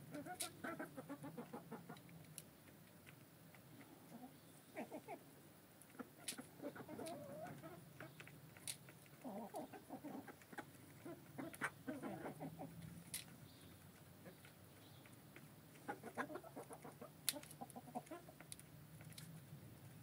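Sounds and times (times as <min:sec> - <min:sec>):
beaks pecking grain: 0:00.0 - 0:20.0
hens clucking quietly: 0:00.0 - 0:20.0.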